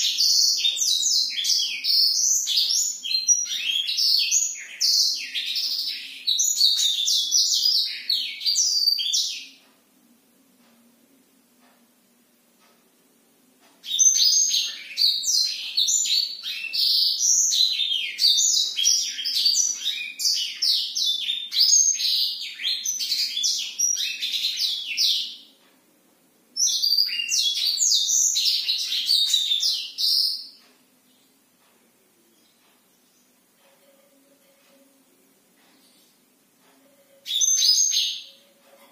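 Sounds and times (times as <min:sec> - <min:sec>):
bird singing chirps and trills: 0:00.0 - 0:09.7, 0:13.8 - 0:25.6, 0:26.6 - 0:31.4, 0:32.3 - 0:38.9.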